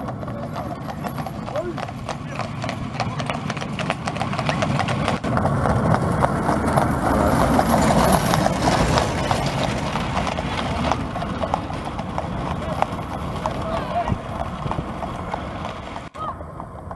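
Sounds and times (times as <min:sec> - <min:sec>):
hooves clip-clopping on road: 0:00.0 - 0:16.9
wooden wagon wheels rumbling: 0:00.0 - 0:16.9.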